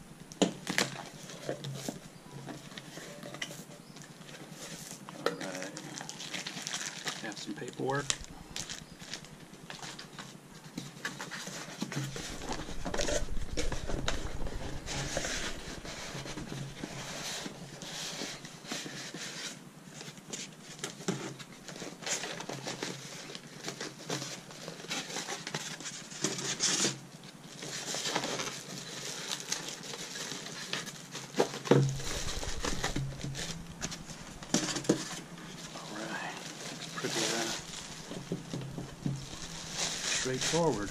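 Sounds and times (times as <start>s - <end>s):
styrofoam and cardboard handled: 0.4s - 40.9s
plastic packaging crinkling: 5.4s - 10.4s, 11.0s - 18.4s, 21.6s - 40.9s
low rumble: 12.1s - 18.0s, 31.8s - 35.8s, 37.5s - 40.9s.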